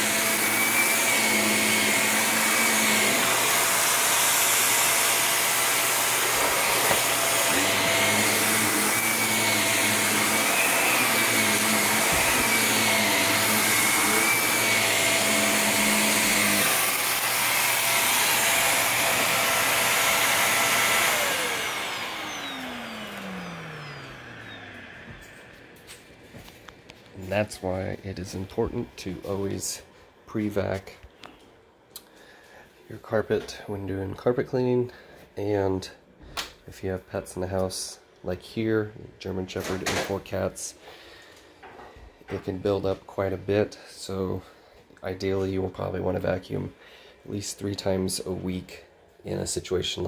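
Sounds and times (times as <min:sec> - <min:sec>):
vacuum cleaner running over carpet: 0:00.0 - 0:25.7
vacuum motor winding down: 0:00.0 - 0:26.5.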